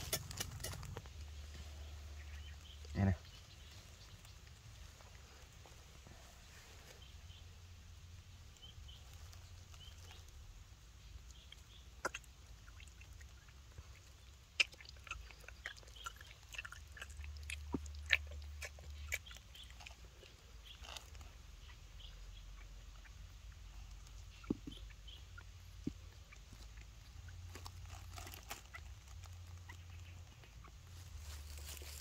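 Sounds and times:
baby monkey sucking milk bottle: 0:11.3 - 0:30.5.

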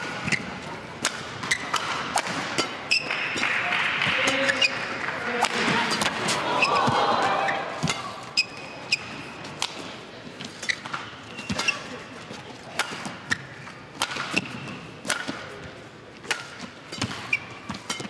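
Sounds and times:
racket hitting shuttlecock: 0:00.0 - 0:12.0, 0:12.6 - 0:18.0
shoe squeaks on court: 0:01.4 - 0:01.7, 0:17.0 - 0:18.0.

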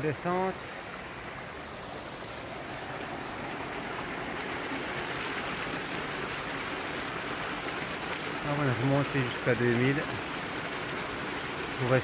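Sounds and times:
stream rushing over rocks: 0:00.0 - 0:12.0.

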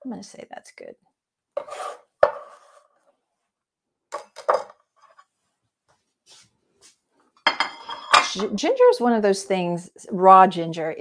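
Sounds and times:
utensils clattering: 0:07.5 - 0:08.6
kitchen utensils knocking: 0:07.5 - 0:08.7.

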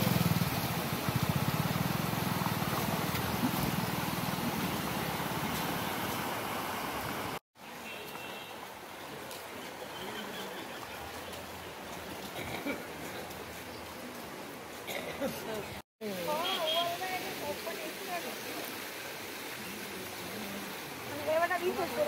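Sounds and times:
motorcycle engine running: 0:00.0 - 0:04.5
floodwater rushing: 0:00.0 - 0:22.0.

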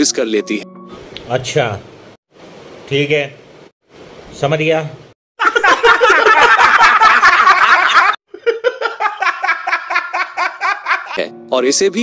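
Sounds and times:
man laughing in bursts: 0:05.4 - 0:11.2
men laughing together: 0:05.4 - 0:11.2.

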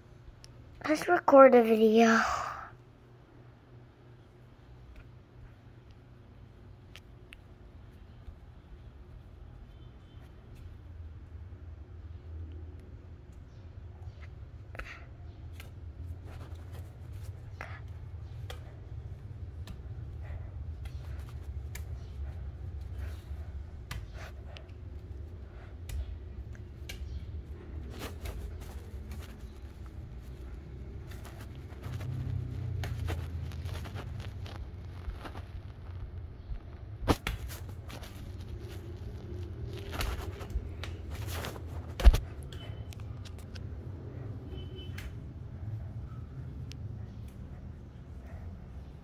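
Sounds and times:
steady low rumble: 0:10.8 - 0:49.0.

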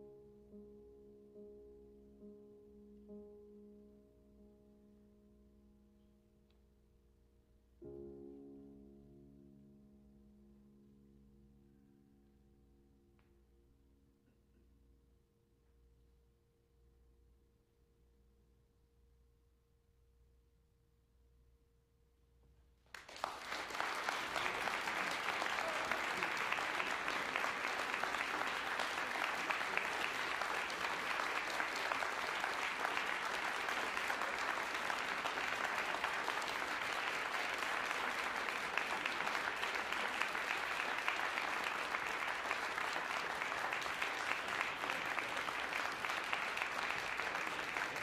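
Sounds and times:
audience applauding: 0:22.9 - 0:48.0.

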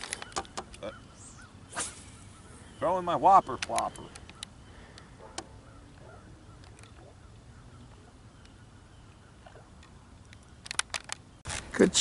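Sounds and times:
sharp clicks: 0:03.5 - 0:05.5, 0:10.3 - 0:11.2.

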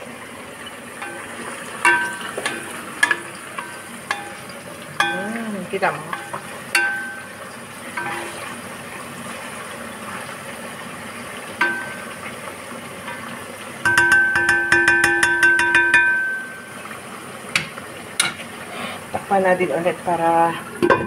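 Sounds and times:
fries sizzling in oil: 0:00.0 - 0:21.0
spatula knocking on pot: 0:01.0 - 0:07.4, 0:11.6 - 0:12.2, 0:13.8 - 0:16.6, 0:17.5 - 0:18.4.

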